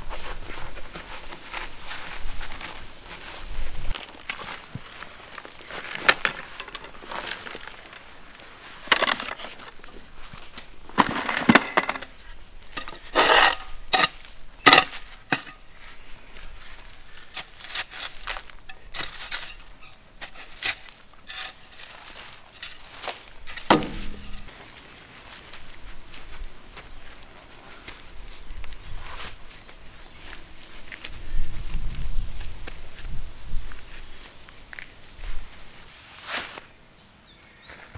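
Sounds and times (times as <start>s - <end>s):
spade scraping soil and gravel: 3.9s - 25.6s
dull thump: 23.6s - 24.5s.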